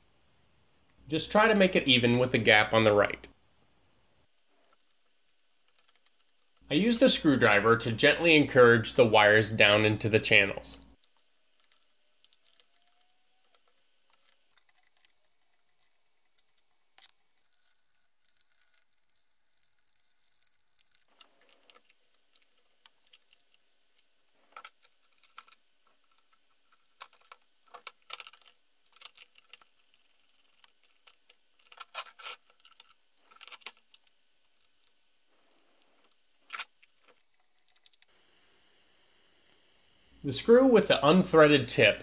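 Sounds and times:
faint clicks and knocks of parts: 0:04.2 - 0:06.7, 0:10.9 - 0:38.6.

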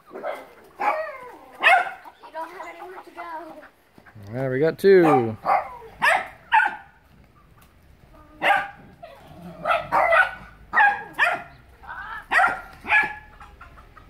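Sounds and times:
dog barking: 0:00.1 - 0:02.1, 0:05.0 - 0:07.0, 0:08.4 - 0:08.9, 0:09.6 - 0:11.6, 0:12.3 - 0:13.3.

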